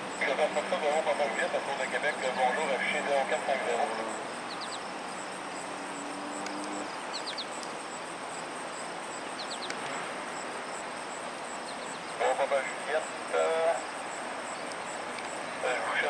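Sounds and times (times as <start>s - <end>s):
pulsing insect trill: 0.0s - 16.0s
steady outdoor hiss: 0.0s - 16.0s
small bird chirping: 4.1s - 12.2s.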